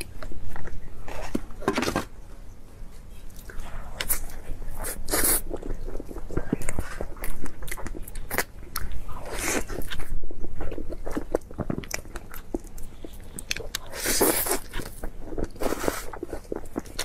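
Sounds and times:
chewing: 3.2s - 17.0s.

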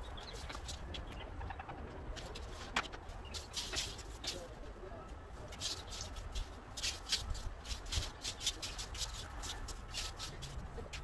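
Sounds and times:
broom sweeping leaves on dirt: 3.2s - 4.6s, 5.3s - 11.0s.

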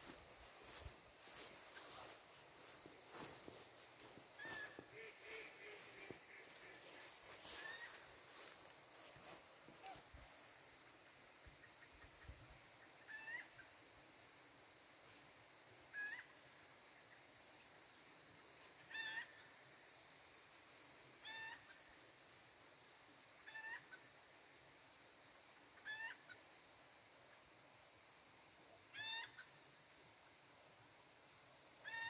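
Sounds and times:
bird calling faintly: 0.0s - 10.5s.

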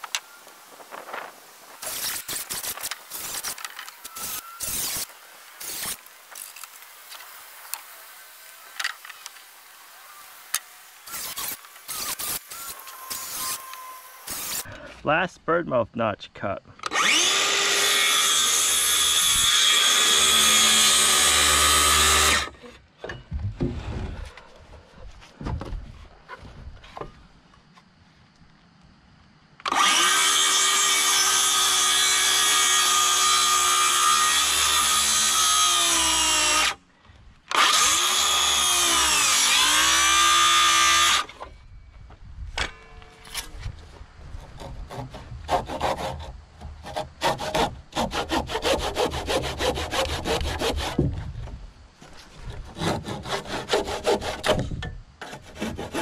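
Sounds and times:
circular saw cutting wood: 1.8s - 14.8s, 16.9s - 22.8s, 29.7s - 36.8s, 37.5s - 41.4s, 44.4s - 51.1s, 52.4s - 54.6s, 55.2s - 56.0s
knocks and scrapes of handling: 22.6s - 27.9s, 51.0s - 52.8s.

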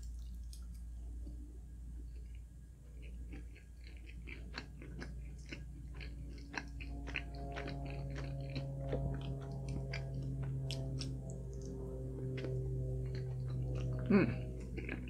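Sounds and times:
person chewing: 2.0s - 15.0s.

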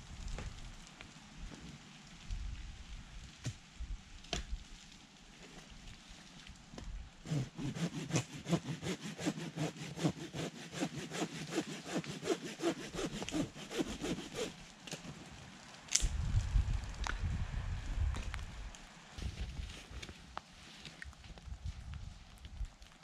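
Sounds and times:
rapid rhythmic scraping strokes: 7.3s - 14.5s.

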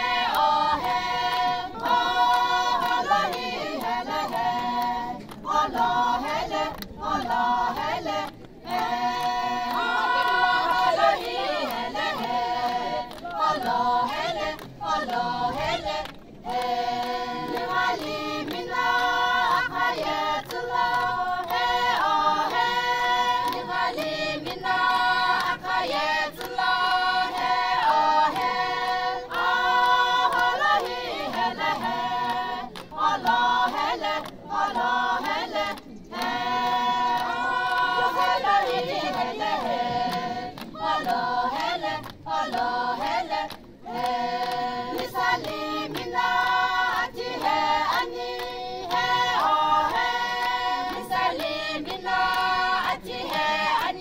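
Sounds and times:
women singing in unison: 0.0s - 54.0s.

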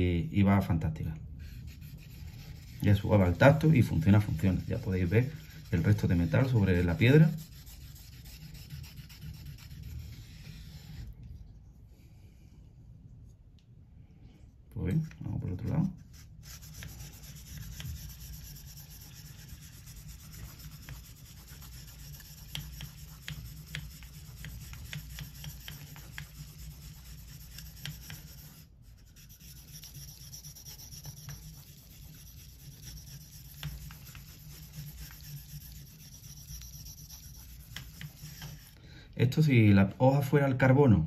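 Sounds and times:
blade scratching on whetstone: 16.6s - 38.8s.

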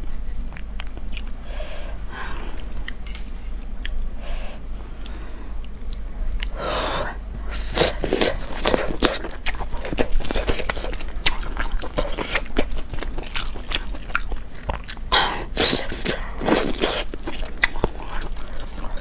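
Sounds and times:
biting slurping and chewing food: 7.5s - 19.0s.

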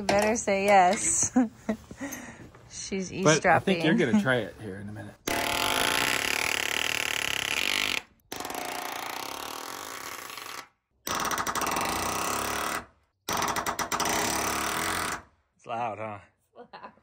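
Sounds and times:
pneumatic nailer hammering nails: 5.3s - 15.3s.

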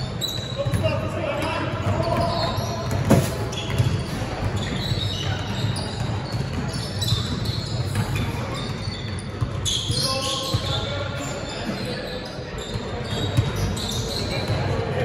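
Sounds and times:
basketball bouncing on gym floor: 0.2s - 10.8s.

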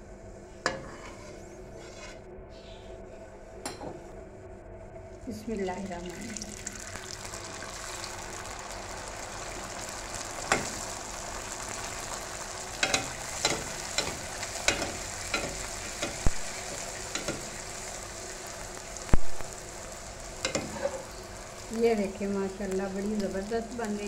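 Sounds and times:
deep-frying sizzle: 5.5s - 24.0s.

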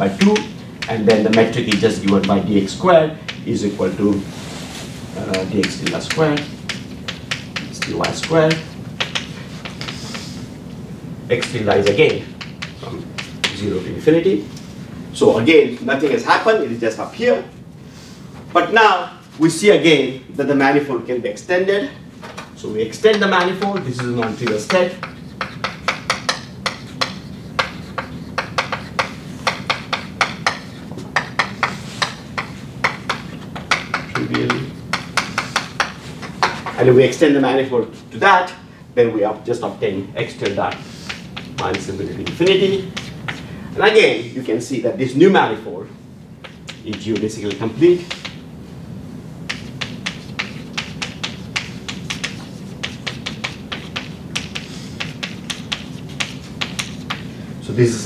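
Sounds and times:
chalk tapping and scratching: 0.0s - 10.5s, 11.3s - 13.8s, 22.7s - 37.2s, 39.9s - 43.6s, 46.4s - 48.4s, 49.4s - 57.4s
low room hum: 0.0s - 58.0s.

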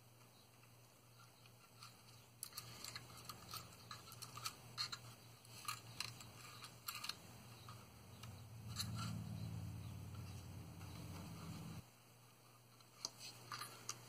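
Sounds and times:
low steady hum: 0.0s - 14.0s
plastic parts clicking and tapping: 1.4s - 8.9s.

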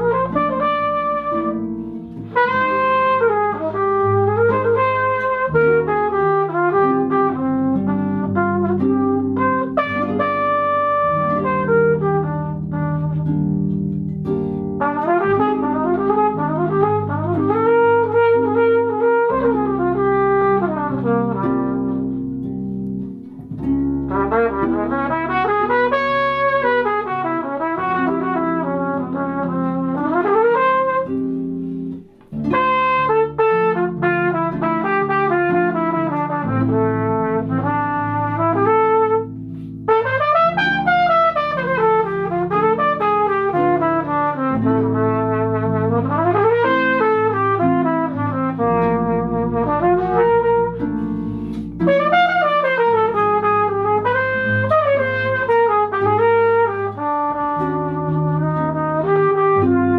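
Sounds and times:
flugelhorn melody: 0.0s - 59.9s
harp accompaniment: 7.4s - 19.8s, 48.6s - 52.4s.

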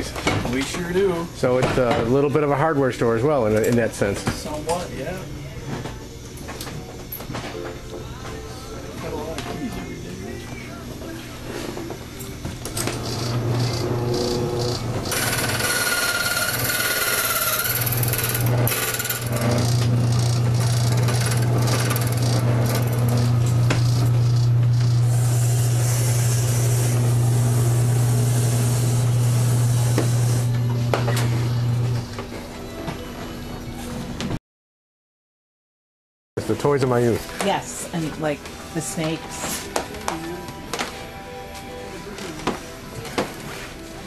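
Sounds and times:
cutter grinding into key: 12.7s - 26.9s
key cutting machine motor humming: 12.7s - 32.1s.

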